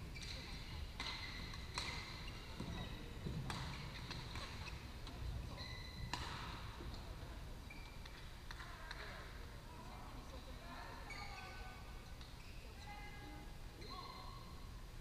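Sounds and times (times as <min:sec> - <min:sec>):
court shoes squeaking: 0:00.0 - 0:09.2, 0:10.4 - 0:14.7
rackets hitting shuttlecocks: 0:01.0 - 0:04.6, 0:06.1 - 0:06.6.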